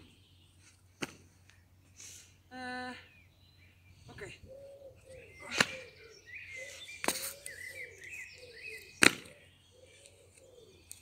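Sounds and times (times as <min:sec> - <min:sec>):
birds chirping faintly: 0:00.0 - 0:11.0
sneakers landing on brick: 0:09.0 - 0:09.3.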